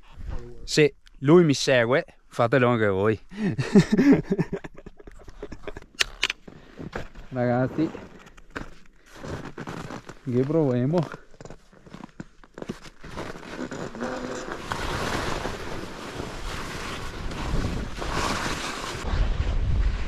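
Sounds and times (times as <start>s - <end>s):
skis hissing over snow: 13.6s - 20.0s.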